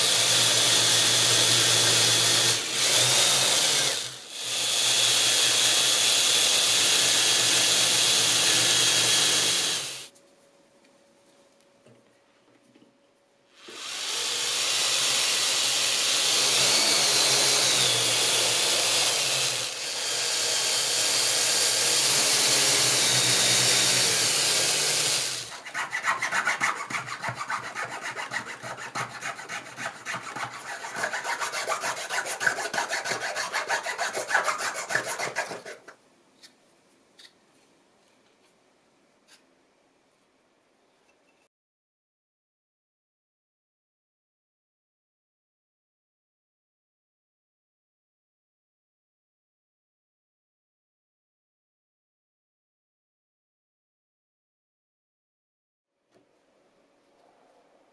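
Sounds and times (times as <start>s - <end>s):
power drill boring: 0.0s - 10.1s, 13.6s - 25.5s
hand file scraping: 25.4s - 36.0s.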